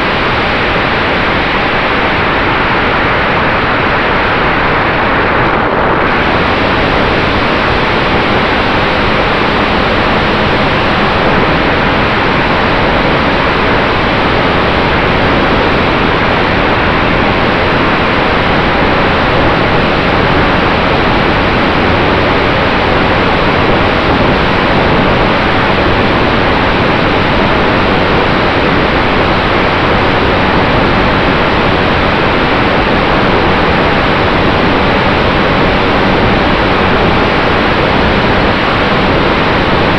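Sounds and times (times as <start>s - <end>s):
propeller noise: 0.0s - 29.4s
wind rush: 0.0s - 39.9s.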